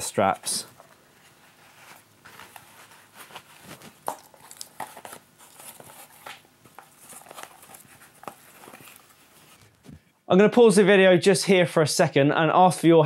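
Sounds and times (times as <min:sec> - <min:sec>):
straps rustling: 0:00.0 - 0:10.1.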